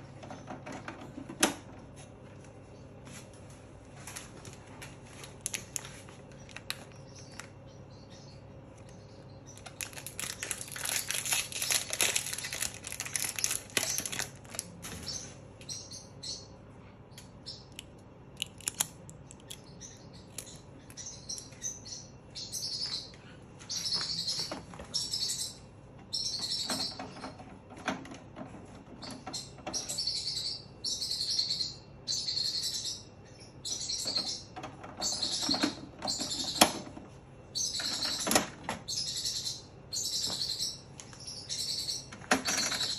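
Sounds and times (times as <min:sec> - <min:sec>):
high chirping: 0:18.5 - 0:27.4, 0:29.0 - 0:36.8, 0:37.5 - 0:42.9.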